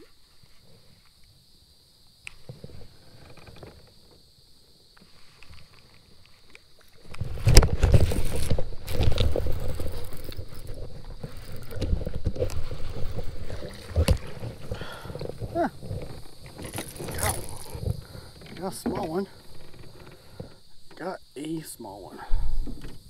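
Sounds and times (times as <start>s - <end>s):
reel clicks and knocks: 6.5s - 21.0s
handling noise rubbing: 7.2s - 20.6s.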